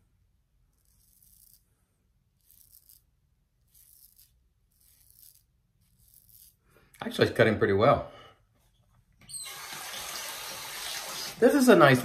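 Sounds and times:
razor blade scraping stubble: 0.7 - 1.7, 2.3 - 6.7.

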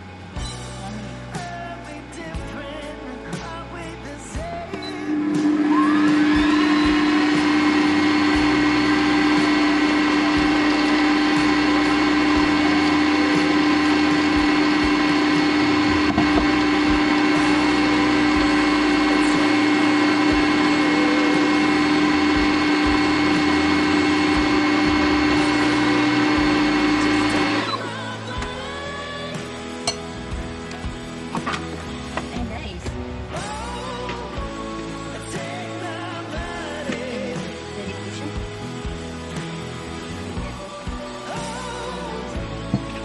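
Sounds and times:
kitchen robot motor whining: 5.0 - 28.0.

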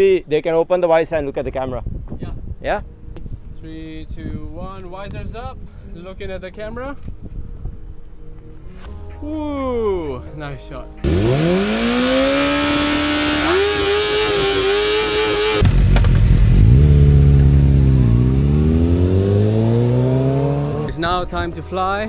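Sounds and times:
motorcycle engine revving: 11.0 - 21.0
motorcycle engines accelerating: 11.0 - 21.1.

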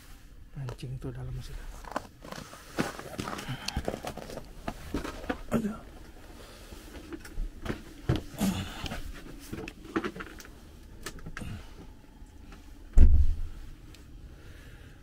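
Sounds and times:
low bump on microphone: 13.0 - 13.6.

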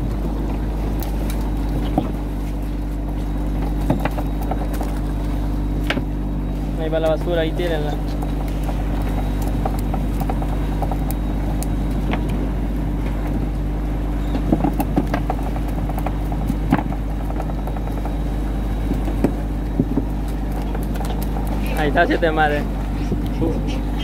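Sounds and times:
boat motor droning: 0.0 - 24.0.

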